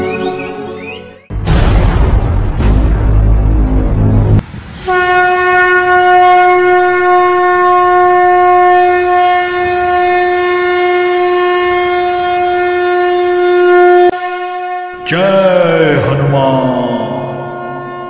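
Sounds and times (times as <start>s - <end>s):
conch shell blown in long note: 4.9s - 15.1s, 17.2s - 18.0s.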